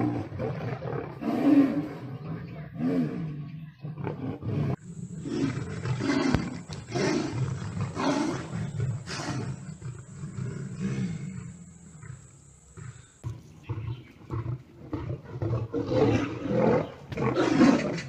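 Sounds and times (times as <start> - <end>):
lion and tiger roaring: 0.0 - 18.0.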